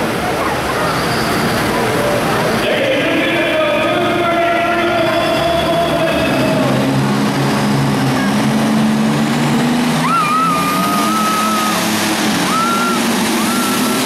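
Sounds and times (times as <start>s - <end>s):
tractor engine at high revs: 0.0s - 14.0s
high whistling tone: 12.5s - 14.0s.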